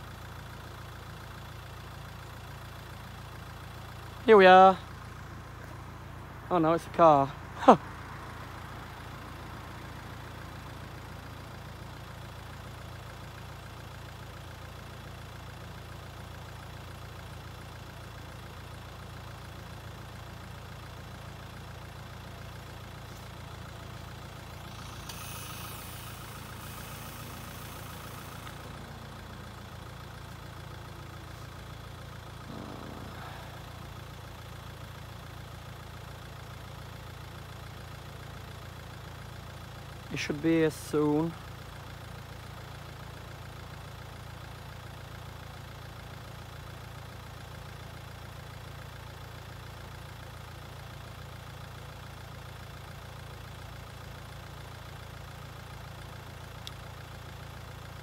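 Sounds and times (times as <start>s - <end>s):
vehicle engine idling: 0.0s - 58.0s
brief rushing hiss: 24.8s - 28.8s.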